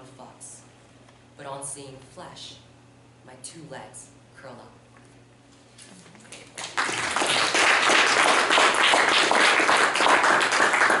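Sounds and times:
audience applause: 6.6s - 11.0s.

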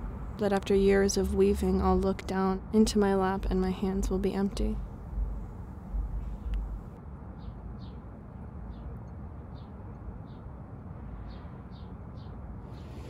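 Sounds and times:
low outdoor rumble: 0.0s - 7.0s.

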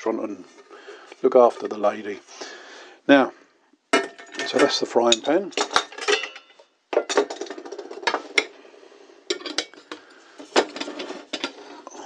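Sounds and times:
metal cookware clinking: 4.0s - 8.5s, 9.3s - 10.0s.

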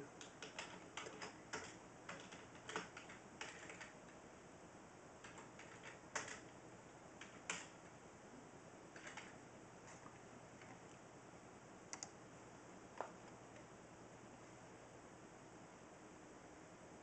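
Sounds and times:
typing on computer keyboard: 0.2s - 4.1s, 5.2s - 6.6s, 7.2s - 7.8s, 9.0s - 9.4s, 11.9s - 12.2s.

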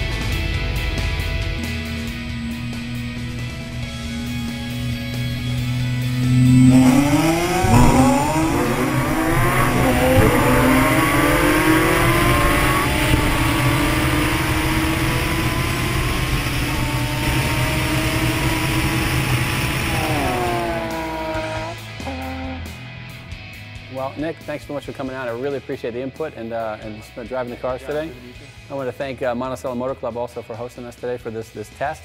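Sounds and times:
race car engines at full throttle: 0.0s - 22.2s.

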